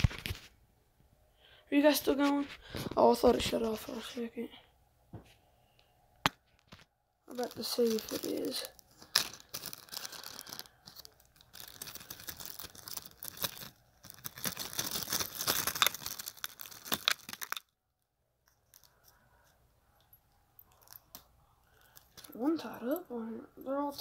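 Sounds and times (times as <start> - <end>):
rustling handling noise on microphone: 0.0 - 0.6, 1.9 - 4.3.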